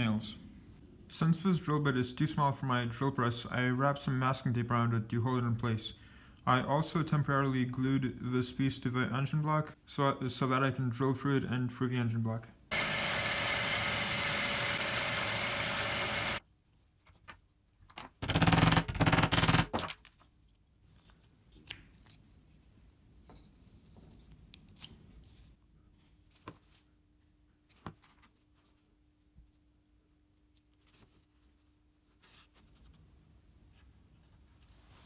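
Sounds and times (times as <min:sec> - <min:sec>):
drill press boring wood: 0:12.7 - 0:16.4.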